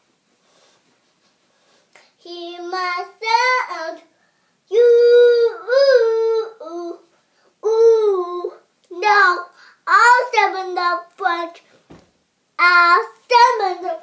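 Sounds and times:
girl singing a chant: 2.2 - 11.7, 12.6 - 14.0.

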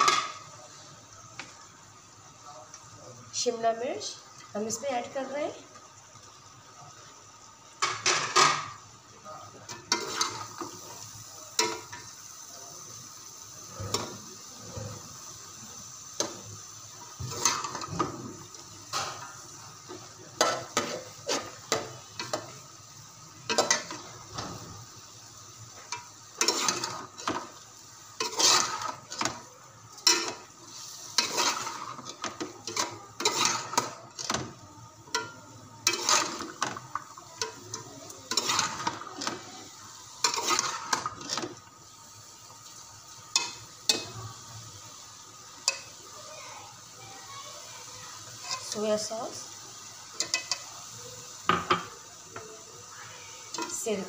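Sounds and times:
frying sizzle: 0.0 - 54.0
metal ladle scraping a pot: 28.2 - 29.4, 31.2 - 34.4, 35.8 - 36.8, 38.3 - 39.6, 40.2 - 41.5.

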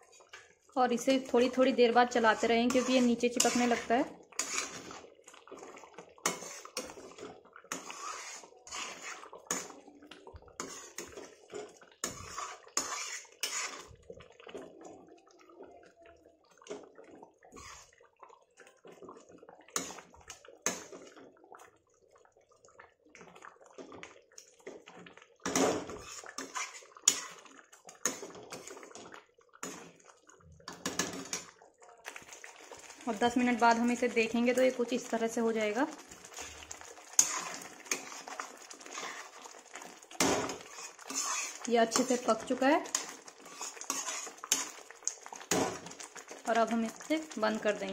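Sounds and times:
ladle stirring thick liquid: 0.0 - 47.9
metal scraping pan: 1.4 - 5.1, 6.2 - 9.8, 10.6 - 14.0, 17.5 - 18.0, 25.4 - 28.9, 36.2 - 39.5, 40.2 - 44.8.

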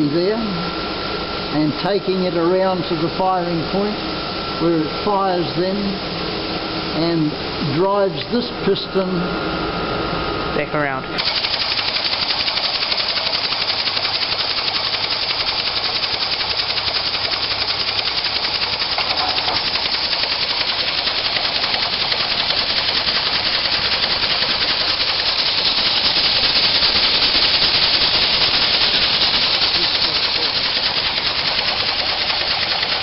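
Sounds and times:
air engine mechanical chatter: 10.6 - 33.0.

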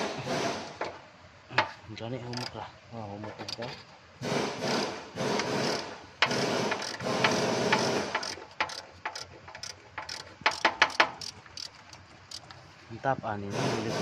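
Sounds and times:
ratchet wrench clicking: 2.3 - 2.6, 3.3 - 3.8, 5.4 - 12.6.

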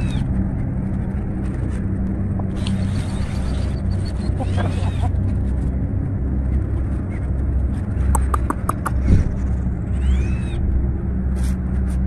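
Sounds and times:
low steady rumble: 0.0 - 12.0
chickens clucking: 2.3 - 5.4, 8.2 - 9.1.

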